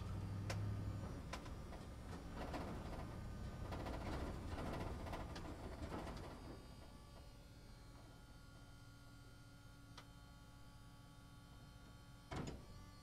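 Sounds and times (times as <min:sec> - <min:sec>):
bus road rumble: 0:00.0 - 0:05.8
steady hum with held tones: 0:00.0 - 0:13.0
bus cabin rattles: 0:01.4 - 0:06.4.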